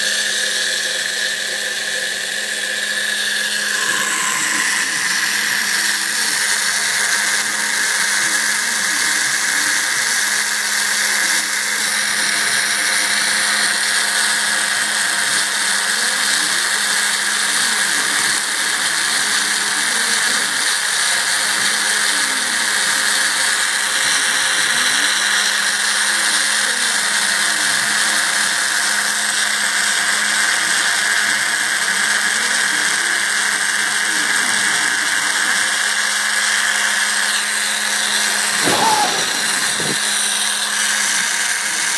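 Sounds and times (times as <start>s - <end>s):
spindle high whine: 0.0s - 9.8s, 37.9s - 41.0s
motors whining up and down: 0.0s - 41.9s.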